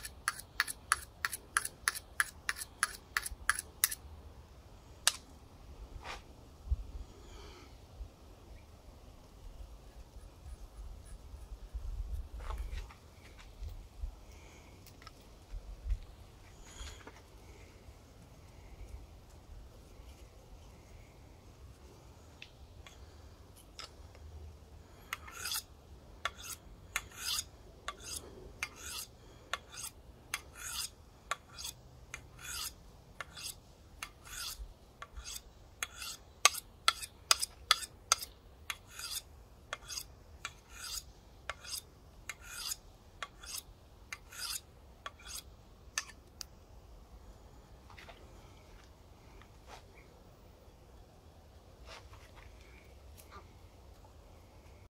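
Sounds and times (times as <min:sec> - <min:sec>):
knife scraping on sharpening steel: 0:00.0 - 0:04.0, 0:25.0 - 0:46.2.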